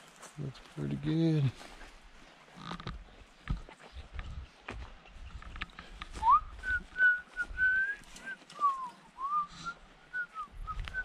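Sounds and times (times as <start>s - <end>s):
footsteps on dry ground: 0.0s - 11.0s
person whistling a tune: 6.2s - 11.0s.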